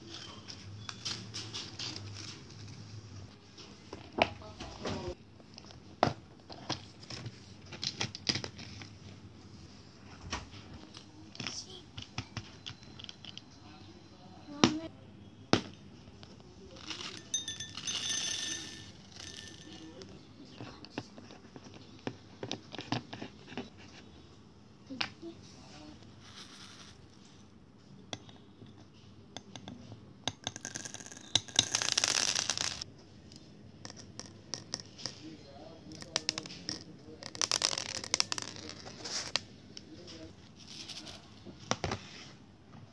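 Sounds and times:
glass jars clinking: 0:16.9 - 0:19.9.

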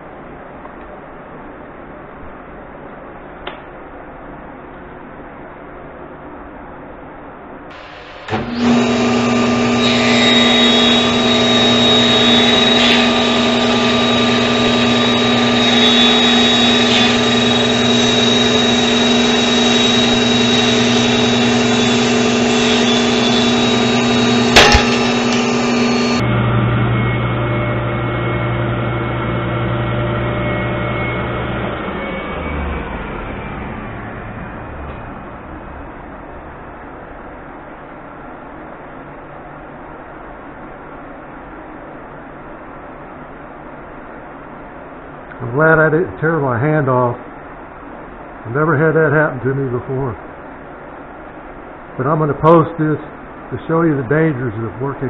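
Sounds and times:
table saw humming: 0:07.7 - 0:36.3
sharp crack of workpiece: 0:24.5 - 0:25.2.

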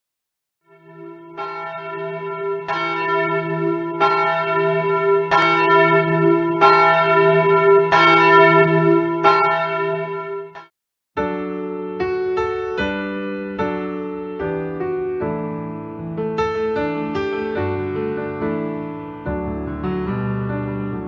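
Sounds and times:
church bell tolling: 0:00.7 - 0:10.7.

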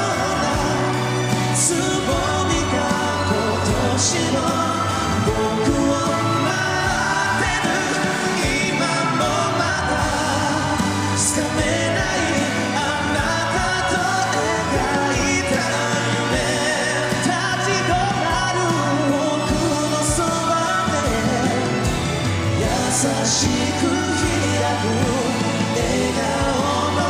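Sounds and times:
band accompaniment: 0:00.0 - 0:27.0
men singing pop ballad: 0:00.0 - 0:27.0.

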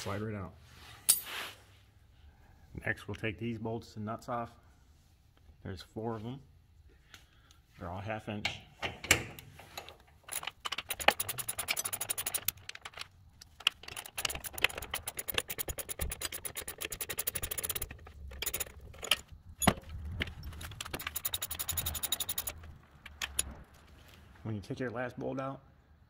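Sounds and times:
metallic clinks of wrench and bolts: 0:10.2 - 0:23.6
socket ratchet clicking: 0:10.3 - 0:19.2, 0:20.7 - 0:23.5.

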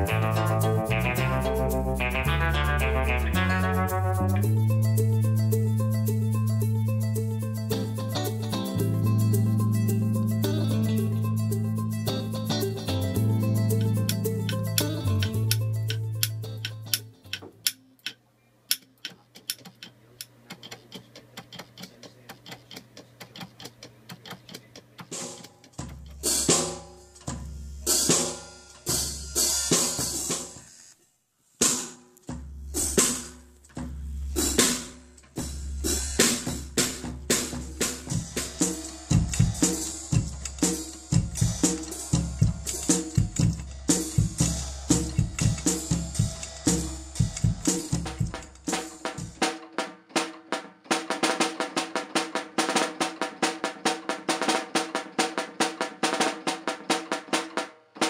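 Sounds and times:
low bass notes: 0:00.0 - 0:17.2, 0:35.4 - 0:48.7
automated drum kit beat: 0:00.0 - 0:17.8, 0:20.5 - 0:30.6, 0:31.6 - 0:58.0
solenoid clicking: 0:14.1 - 0:25.6.

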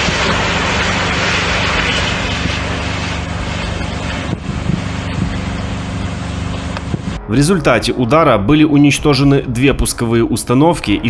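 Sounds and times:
distant burning: 0:00.0 - 0:07.2
truck engine idling: 0:00.0 - 0:07.3.

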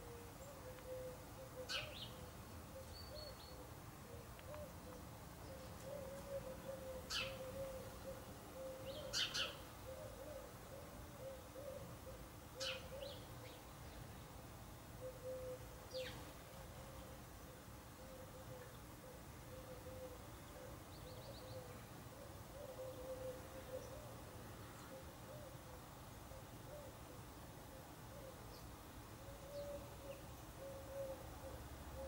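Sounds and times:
sparrow chirps: 0:08.6 - 0:09.6.

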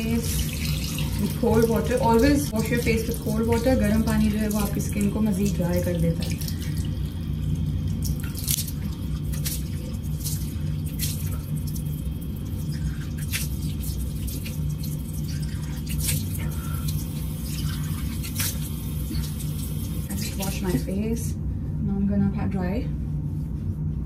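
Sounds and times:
water dripping: 0:00.0 - 0:20.8
steady low hum: 0:00.0 - 0:24.0
water splashing onto face: 0:00.2 - 0:20.1.

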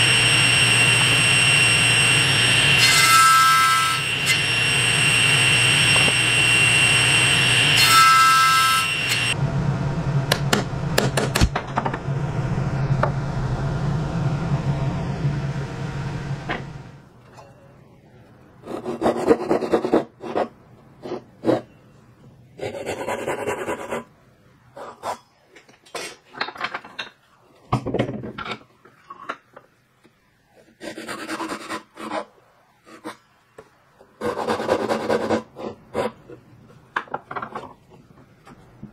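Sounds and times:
table saw cutting wood: 0:00.0 - 0:09.4.

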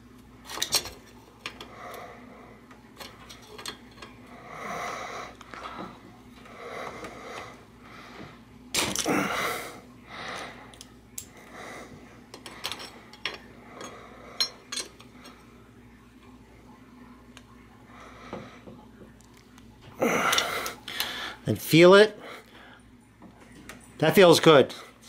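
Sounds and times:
spanners clinking on metal: 0:03.0 - 0:04.2, 0:12.3 - 0:15.1
loud breath: 0:09.0 - 0:10.8, 0:20.0 - 0:21.4.

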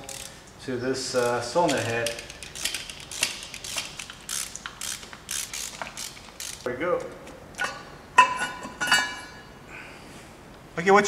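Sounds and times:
socket ratchet clicking: 0:01.6 - 0:06.7
metallic clanks with ringing: 0:07.6 - 0:09.5.

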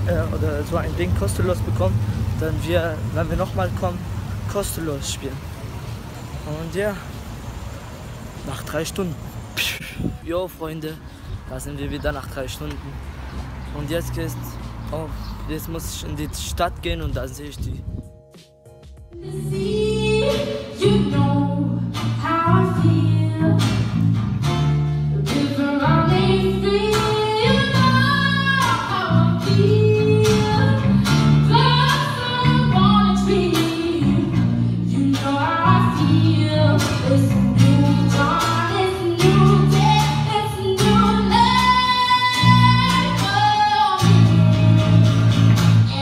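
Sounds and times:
guitar: 0:17.9 - 0:46.0
bass line: 0:19.0 - 0:46.0
woman singing: 0:19.2 - 0:23.8, 0:25.2 - 0:46.0.

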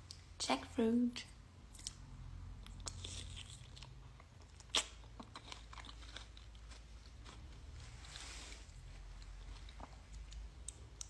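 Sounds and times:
mouth chewing clicks: 0:02.6 - 0:06.0, 0:09.6 - 0:11.0.

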